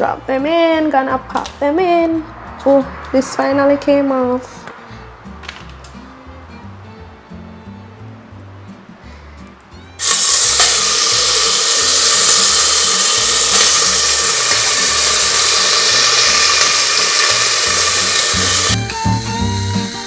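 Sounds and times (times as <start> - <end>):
meat sizzling in hot oil: 10.0 - 20.0.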